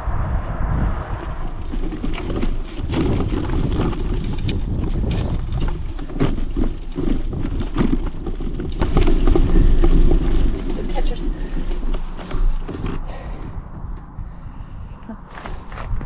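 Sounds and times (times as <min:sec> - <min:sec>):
wind rumbling on microphone: 0:00.0 - 0:16.0
bike clicks and rattles: 0:01.4 - 0:16.0
tyres crunching on gravel: 0:01.5 - 0:13.4.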